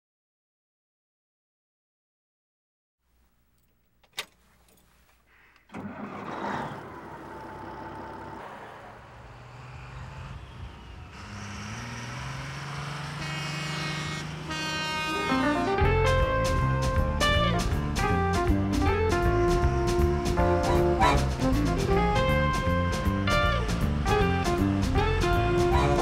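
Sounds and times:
truck engine starting and running: 5.4 - 26.0
music: 14.7 - 26.0.

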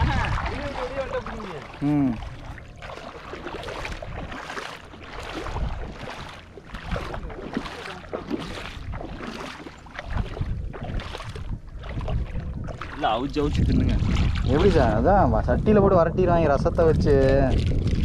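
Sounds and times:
wading through shallow water: 0.0 - 18.0
wind rumble on microphone: 0.0 - 18.0.

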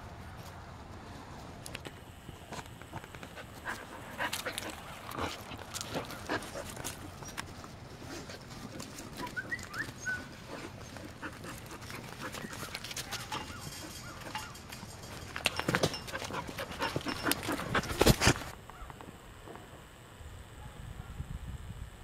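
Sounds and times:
puppies scuffling in snow: 2.4 - 14.2.

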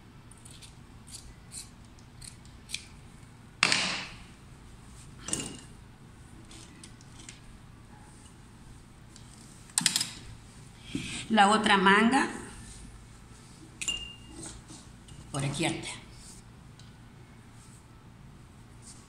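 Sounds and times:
scissors snipping: 0.4 - 2.9.

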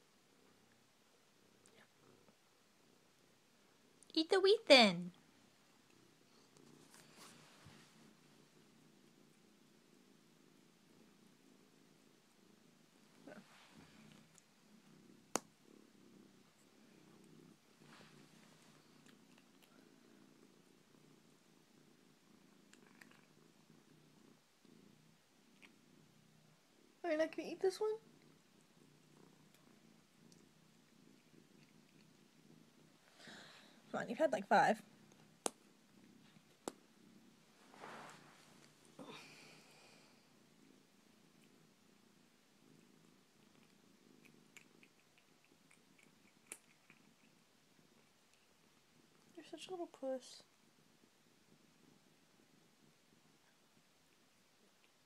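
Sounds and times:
cat purring: 0.0 - 55.0
cat chewing cracker: 43.5 - 47.4.

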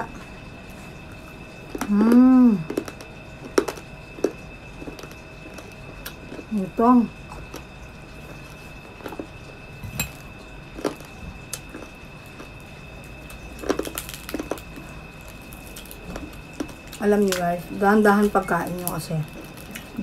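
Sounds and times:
crispy skin crackling: 10.8 - 20.0.

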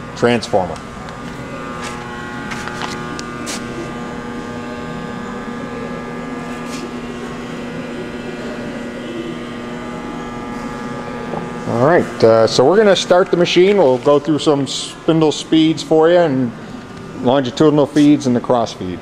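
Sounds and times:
machinery hum: 0.0 - 19.0.

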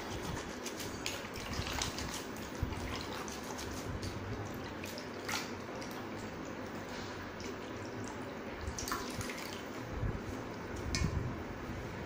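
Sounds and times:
water splashing and dripping: 0.1 - 9.8.

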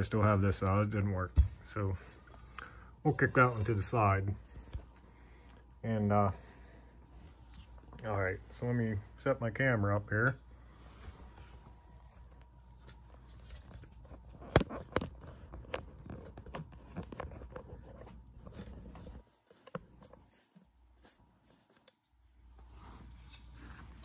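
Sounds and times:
camera handling rubbing and scraping: 12.7 - 22.0.

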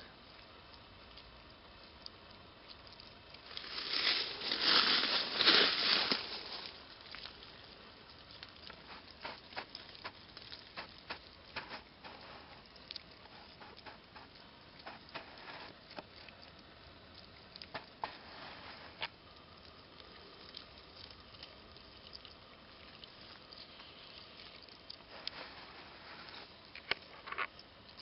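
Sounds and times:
outdoor hiss: 0.0 - 28.0
small clicks and ticks: 0.1 - 28.0
faint rustling: 1.1 - 28.0.

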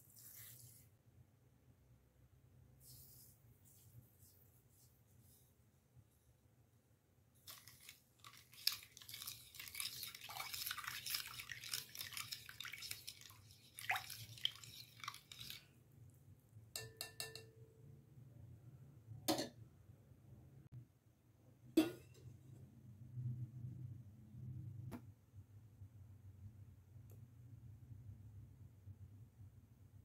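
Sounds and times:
whisk beating in glass bowl: 7.4 - 15.8
whisk clinking against bowl: 7.5 - 15.7.

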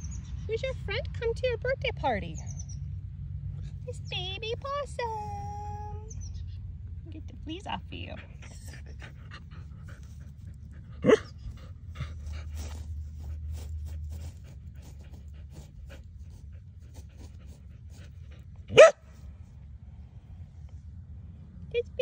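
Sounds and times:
dog panting: 7.2 - 19.0
dog barking: 11.0 - 11.3, 18.7 - 19.0.

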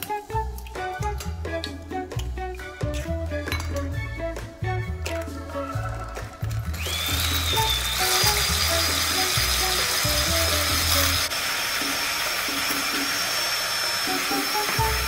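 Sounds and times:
background music: 0.0 - 15.0
electric hand mixer whining: 5.8 - 15.0.

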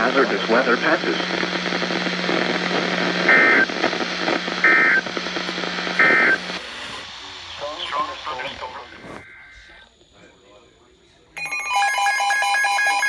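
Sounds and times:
radio static: 0.0 - 11.3
steady hum: 0.0 - 11.4
warbling data bursts: 4.4 - 9.9.

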